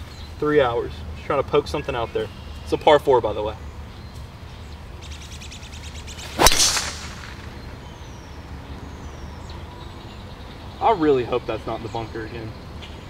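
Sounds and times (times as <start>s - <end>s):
golf club striking ball: 6.2s - 7.7s.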